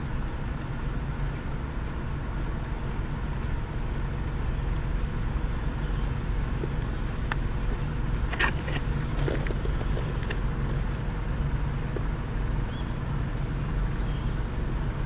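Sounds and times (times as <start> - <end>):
low forest rumble: 0.0 - 15.0
faint bird chirps: 4.2 - 7.3, 11.8 - 14.5.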